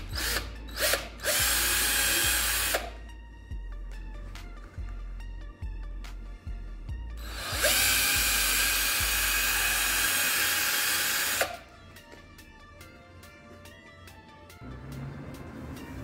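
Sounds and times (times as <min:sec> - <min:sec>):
cordless drill drilling plastic: 0:00.0 - 0:02.9, 0:07.2 - 0:11.6
background music: 0:00.0 - 0:16.0.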